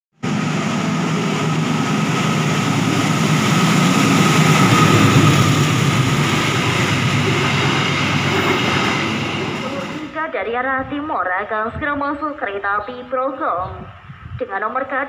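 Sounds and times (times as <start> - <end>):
diesel train passing: 0.2 - 11.0.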